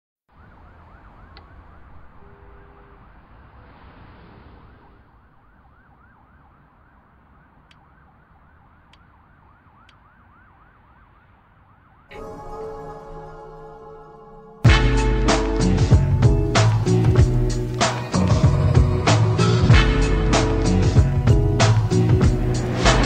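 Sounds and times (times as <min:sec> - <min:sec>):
distant siren yelping: 0:00.3 - 0:03.6, 0:04.6 - 0:23.0
low rumble of city traffic: 0:00.3 - 0:12.4, 0:14.7 - 0:23.0
faint clicks: 0:01.3 - 0:01.6
music: 0:12.1 - 0:23.0.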